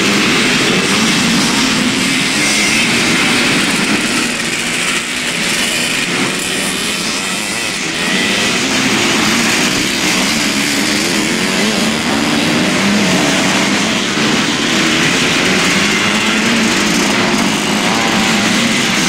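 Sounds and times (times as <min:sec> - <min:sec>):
dirt bike engines revving: 0:00.0 - 0:19.0.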